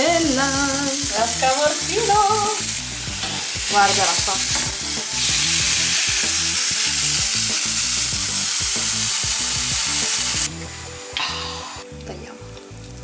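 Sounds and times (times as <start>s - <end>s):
cheese sizzling in a pan: 0.0s - 11.9s.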